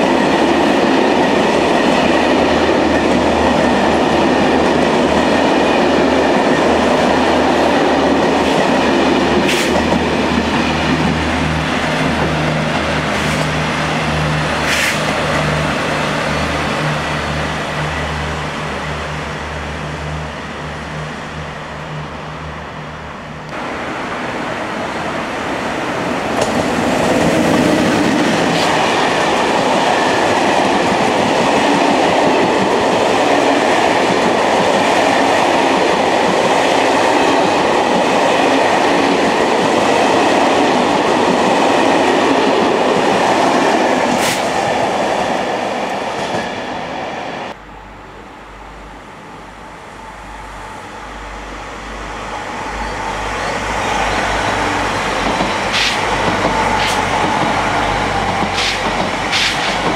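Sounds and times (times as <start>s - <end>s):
train wheels clattering on rails: 0.0s - 15.6s, 26.2s - 45.0s, 54.1s - 59.9s
passenger train passing: 0.0s - 59.9s.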